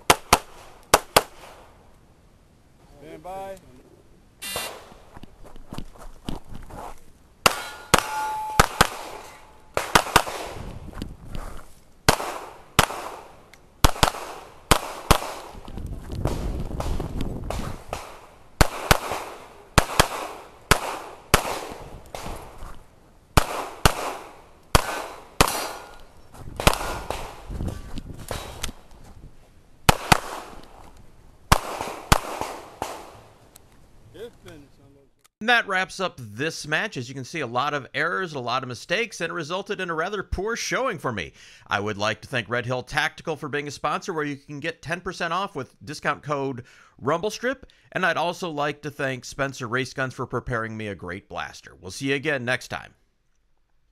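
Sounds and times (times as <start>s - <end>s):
pistol shots: 0.0s - 1.6s, 7.4s - 10.7s, 12.1s - 15.6s, 16.3s - 22.5s, 23.4s - 27.5s, 29.9s - 30.7s, 31.5s - 33.2s
metallic ring from steel target: 7.5s - 9.6s.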